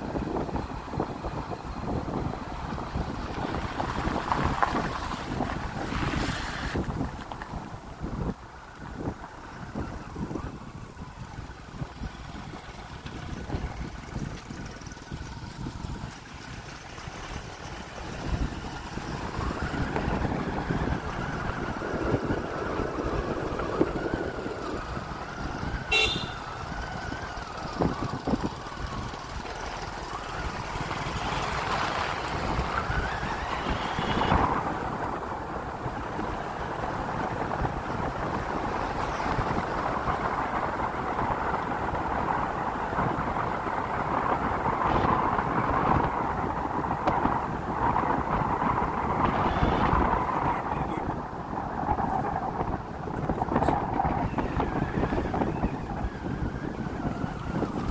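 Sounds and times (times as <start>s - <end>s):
vehicle driving on road: 0.0s - 57.9s
wind rumbling on microphone: 0.0s - 57.9s
short high horn toot: 25.9s - 26.5s.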